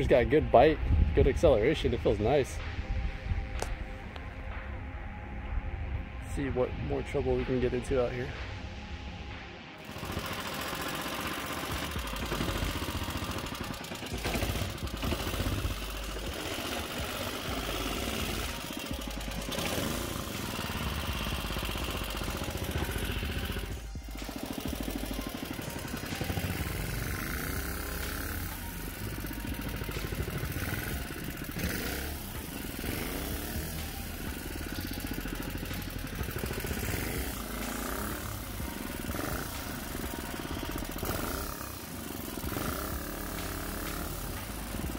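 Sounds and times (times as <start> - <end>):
boat engine running hard: 9.8 - 44.9.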